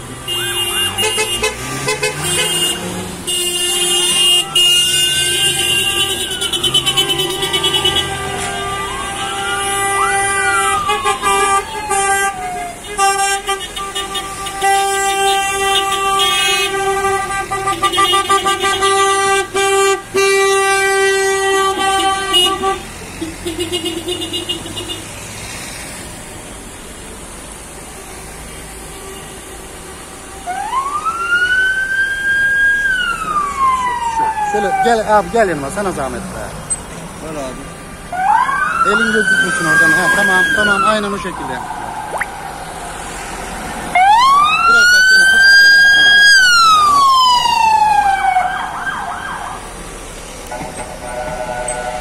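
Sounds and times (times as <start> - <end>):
car horns honking: 0.0 - 25.1, 50.4 - 52.0
siren wailing: 8.6 - 12.8, 30.5 - 35.4, 38.1 - 43.1, 43.9 - 49.7.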